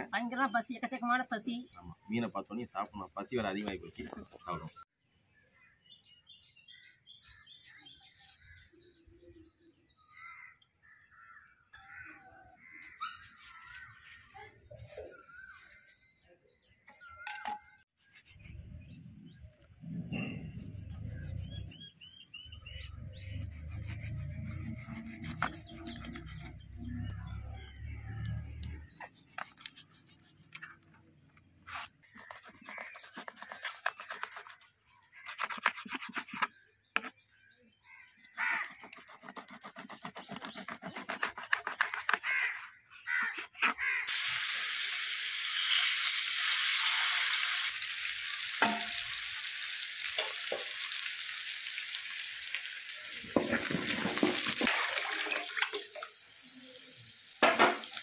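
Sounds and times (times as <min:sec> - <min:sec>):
birds chirping faintly: 0:00.0 - 0:44.0
knife scraping and cutting fish: 0:20.4 - 0:21.8, 0:23.4 - 0:26.6, 0:29.0 - 0:30.8, 0:31.7 - 0:36.5, 0:38.4 - 0:44.0
oil sizzling in a pan: 0:44.1 - 0:58.0.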